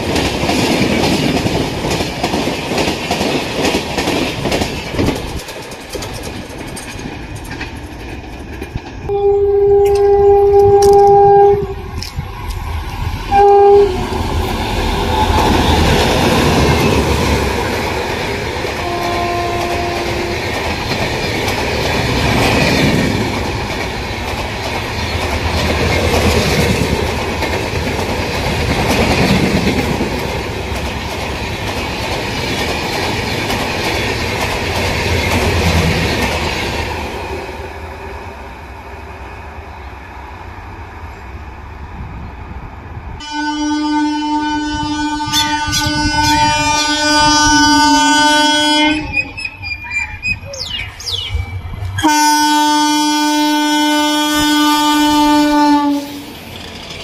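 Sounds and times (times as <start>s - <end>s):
train wheels clattering on rails: 0.0s - 9.1s, 14.1s - 37.6s, 55.1s - 57.0s
two-tone train horn: 9.1s - 12.0s, 13.3s - 14.2s, 18.8s - 20.6s, 43.2s - 49.3s, 52.0s - 56.3s.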